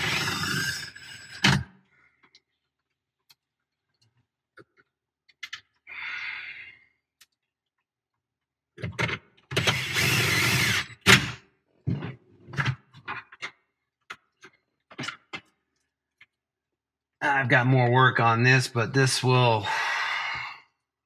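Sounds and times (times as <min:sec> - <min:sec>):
cordless drill driving screw: 0:00.0 - 0:01.4, 0:09.6 - 0:11.3.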